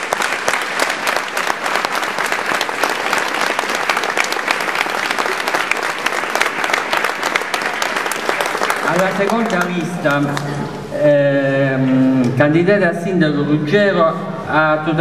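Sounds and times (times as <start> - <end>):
crowd applauding: 0.0 - 10.8.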